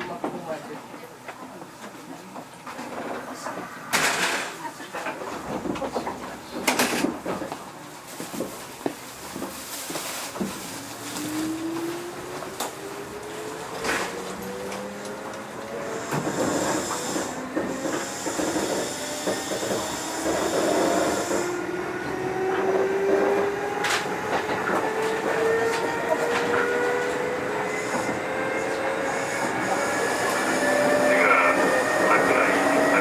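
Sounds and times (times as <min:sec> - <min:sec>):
train running noise: 0:00.0 - 0:33.0
train motors whining: 0:10.4 - 0:33.0.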